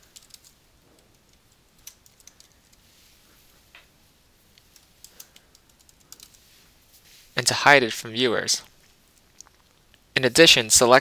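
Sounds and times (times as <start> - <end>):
computer keyboard keystrokes: 0.0 - 2.8, 4.6 - 6.4.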